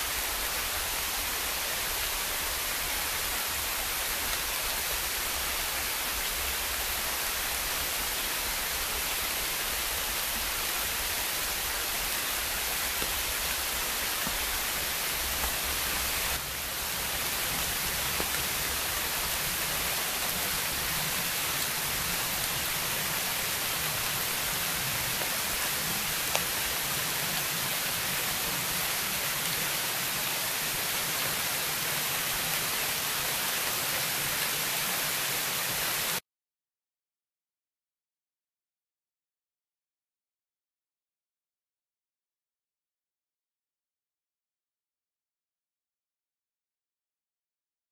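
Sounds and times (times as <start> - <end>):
heavy rain hissing: 0.0 - 36.2.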